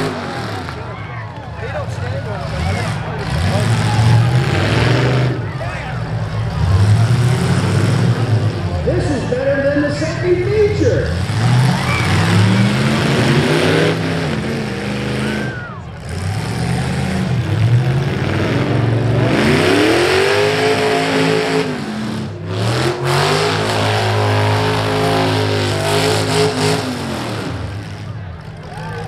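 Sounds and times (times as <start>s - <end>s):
car engines revving hard: 0.0s - 29.0s.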